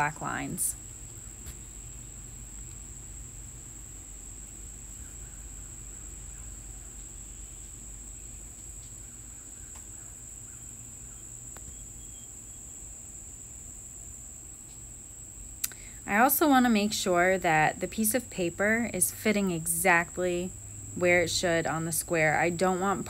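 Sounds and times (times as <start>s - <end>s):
low background hum: 0.0s - 23.0s
faint ticks: 15.6s - 16.0s.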